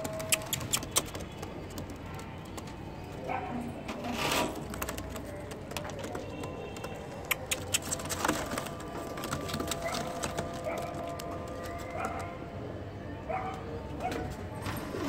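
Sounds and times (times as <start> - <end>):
pigeons rustling: 0.0 - 12.4
sharp clicks and taps: 4.9 - 8.2.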